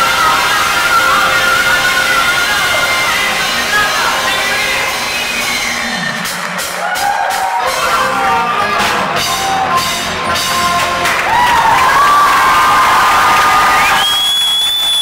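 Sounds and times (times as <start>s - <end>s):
children's choir singing: 0.0s - 6.3s, 7.6s - 11.4s
live rock band: 0.0s - 14.0s.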